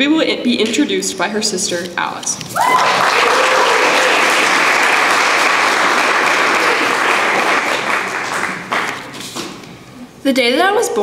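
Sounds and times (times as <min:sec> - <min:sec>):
audience applauding: 0:02.6 - 0:09.3.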